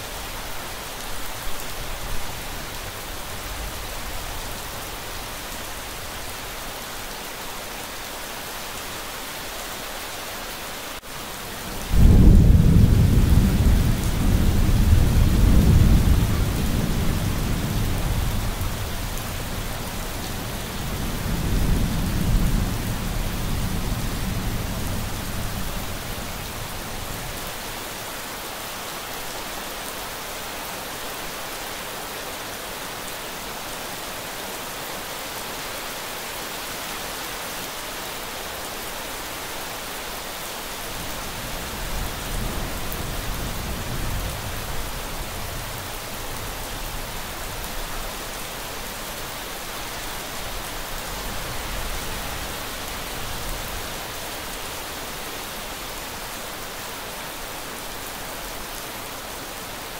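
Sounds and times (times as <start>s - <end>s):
steady rain hiss: 0.0s - 59.9s
thunder rumbling: 11.8s - 19.0s.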